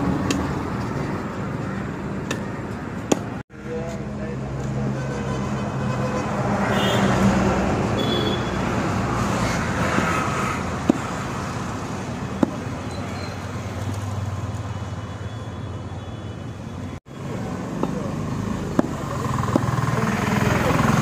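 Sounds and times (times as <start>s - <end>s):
roadside traffic noise: 0.0s - 21.0s
cleaver striking chopping block: 3.1s - 3.3s, 10.8s - 11.1s, 18.7s - 19.8s
vehicle engine running: 17.6s - 21.0s.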